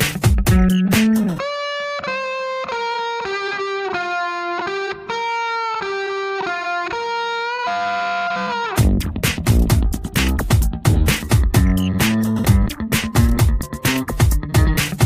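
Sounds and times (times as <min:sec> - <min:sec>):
funk beat: 0:00.0 - 0:04.0, 0:08.6 - 0:15.0
distorted electric guitar melody: 0:00.0 - 0:15.0.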